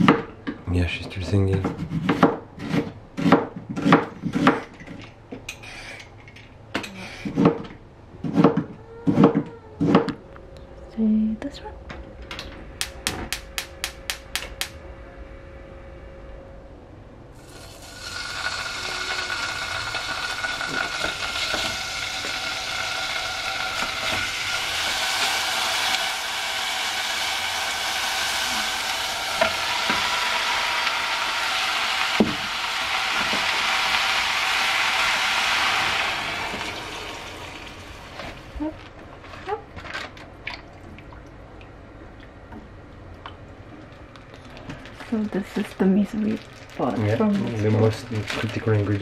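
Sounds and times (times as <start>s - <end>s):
sharp knocks: 12.8s - 14.7s
pork sizzling in oil: 17.4s - 38.7s.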